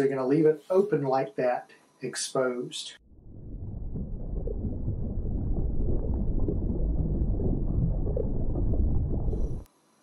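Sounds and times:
deep muffled underwater rumble: 3.0s - 9.7s.

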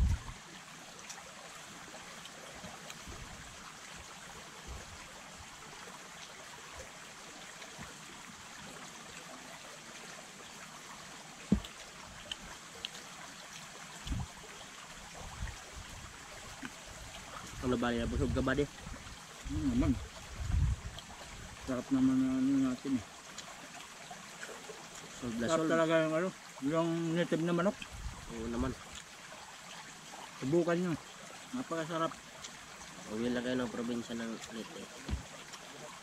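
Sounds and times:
creek trickling: 0.0s - 36.0s
soft thump: 11.5s - 11.7s, 35.0s - 35.3s.

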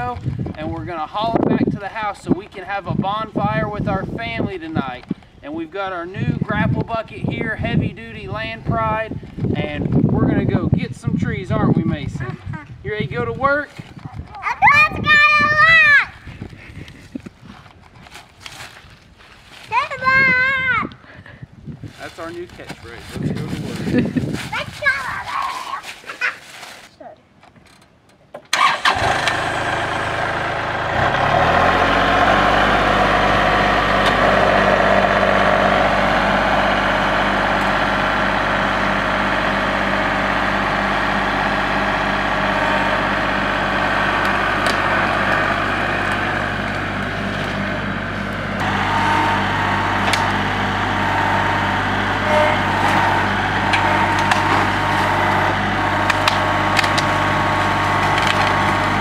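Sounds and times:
tractor diesel engine running: 28.5s - 59.0s
dead branches cracking: 55.9s - 57.3s, 58.0s - 58.9s.

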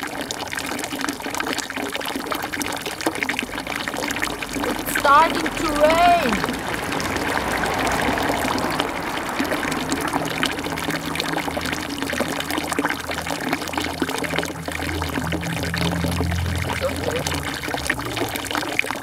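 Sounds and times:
rain patter: 0.0s - 19.0s
low hum: 6.4s - 19.0s.

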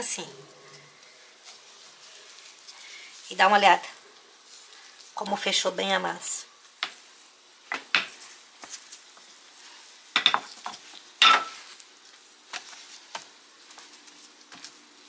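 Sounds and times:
hands slapping bread dough: 12.4s - 14.8s.

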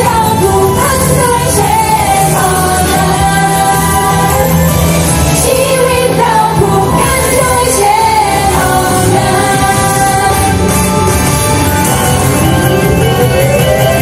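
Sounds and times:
female group vocals singing: 0.0s - 11.2s
pop backing track: 0.0s - 14.0s.

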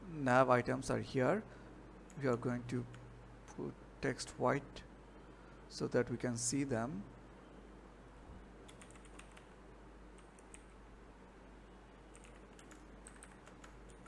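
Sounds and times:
keyboard typing: 8.6s - 9.6s, 10.2s - 10.8s, 12.1s - 14.0s.

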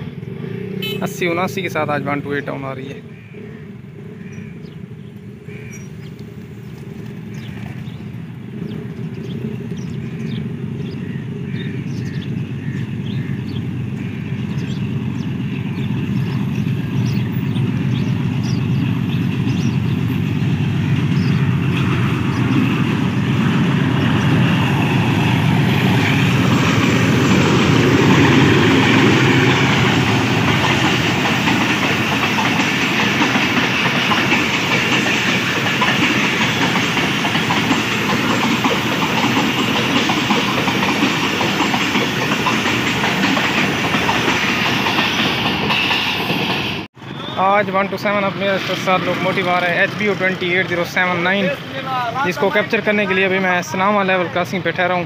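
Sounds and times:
diesel locomotive passing: 0.0s - 55.0s
train wheels clicking over rail joints: 14.4s - 46.9s.

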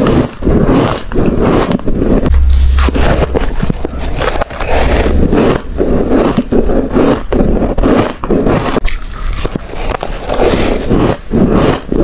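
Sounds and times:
frost crunching when chewed: 0.0s - 12.0s.

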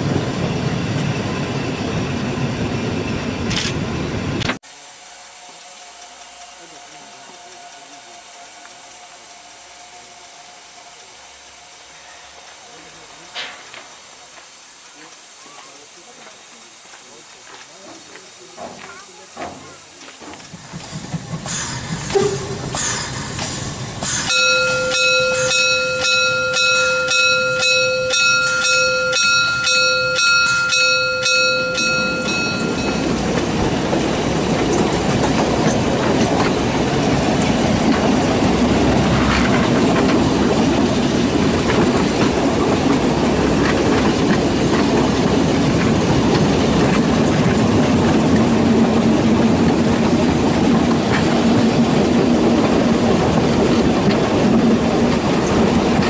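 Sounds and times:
steam locomotive exhaust beats: 0.0s - 56.0s
steady high tone: 24.3s - 34.0s
wheels rolling on track: 31.8s - 56.0s.

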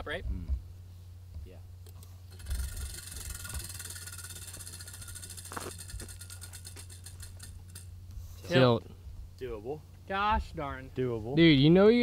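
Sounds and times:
prize wheel clicking: 2.3s - 7.9s.

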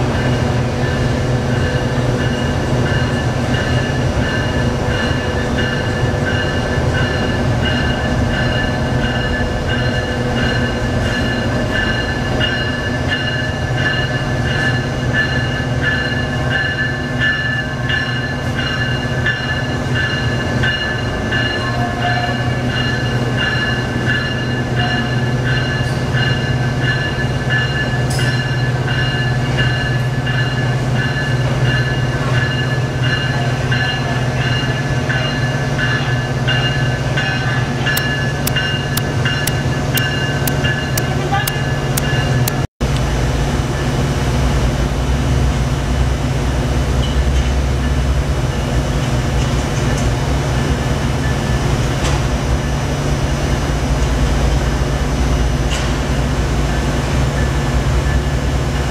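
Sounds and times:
locomotive low hum: 35.2s - 58.9s.

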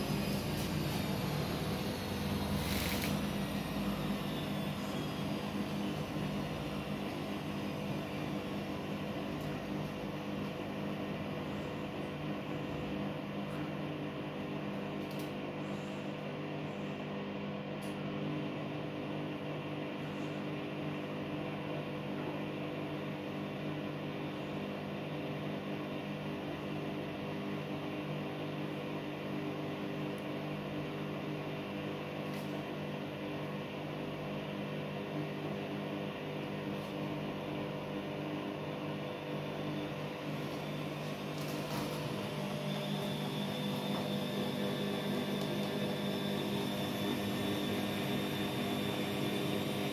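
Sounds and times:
washing machine drum spinning: 39.9s - 49.9s.

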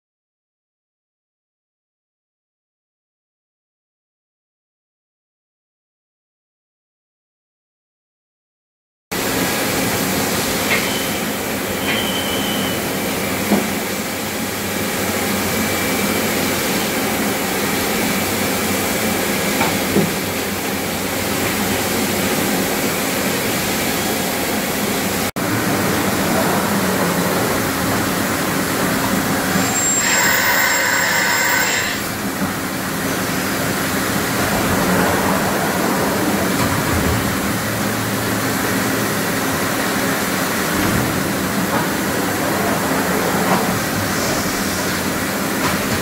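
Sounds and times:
machining center humming: 9.2s - 46.0s
loud high whine: 20.6s - 45.6s.

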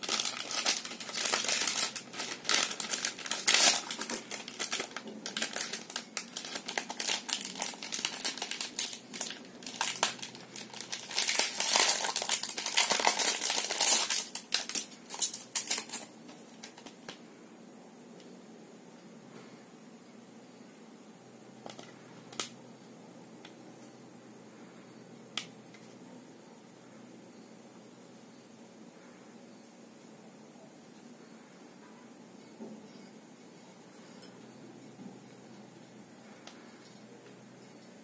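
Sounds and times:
plastic bags crinkling: 0.0s - 17.1s.

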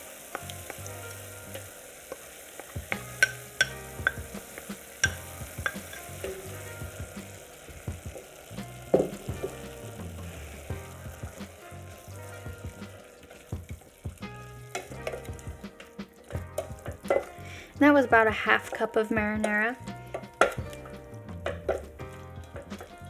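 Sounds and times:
light sizzle: 0.0s - 23.0s
wooden spoon stirring in pot: 0.2s - 23.0s
spoon knocking against pot: 2.9s - 4.4s, 5.0s - 6.1s, 14.8s - 17.3s, 19.4s - 21.9s.

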